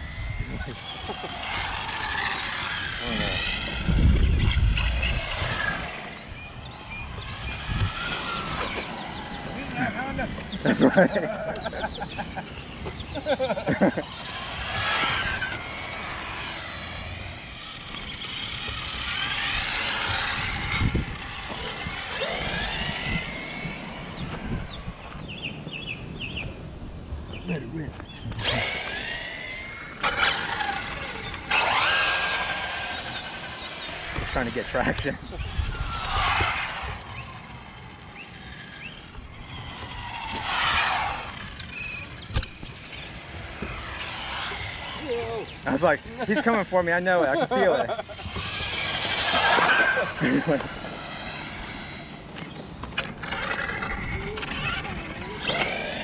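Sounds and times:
rc car motors whining: 0:00.0 - 0:56.0.

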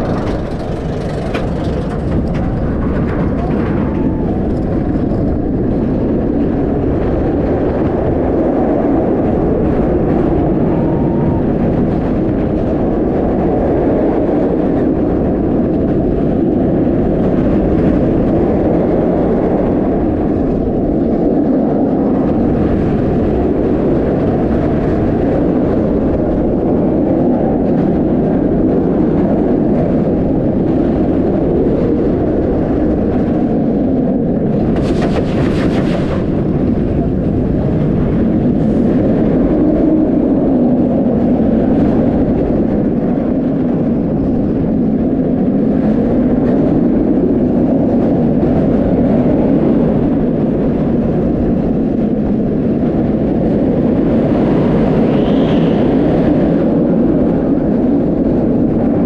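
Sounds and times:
roller coaster train roaring: 0:00.0 - 0:59.0.

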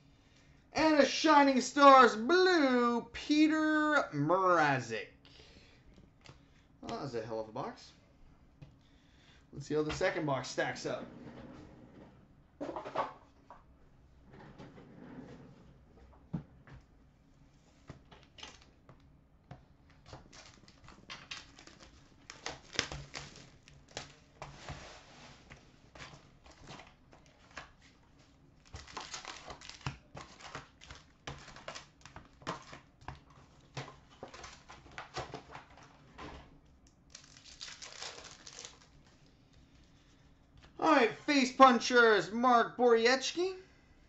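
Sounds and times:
foil card packs crinkling: 0:20.0 - 0:35.9, 0:37.0 - 0:39.8
card packs torn open: 0:20.1 - 0:24.3, 0:28.6 - 0:32.8, 0:37.1 - 0:39.2.

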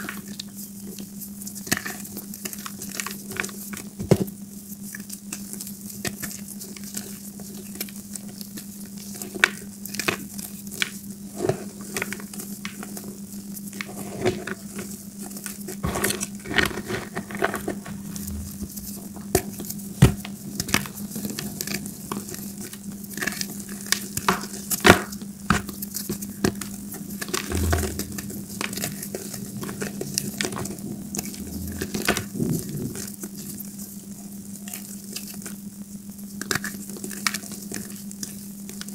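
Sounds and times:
steady low hum: 0:16.5 - 0:34.7.

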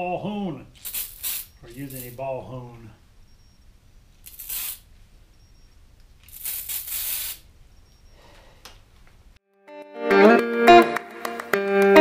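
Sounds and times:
aerosol spray can hissing: 0:00.8 - 0:02.2, 0:04.2 - 0:04.9, 0:06.2 - 0:07.5.

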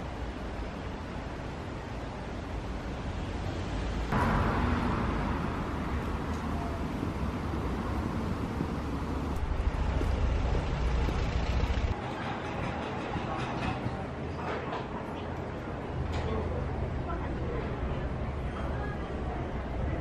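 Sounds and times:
passing cars rumble and hiss: 0:00.0 - 0:12.0.

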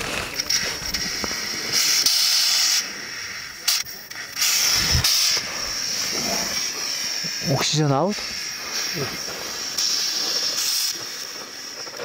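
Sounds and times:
oxygen hissing from regulator: 0:00.0 - 0:12.0.

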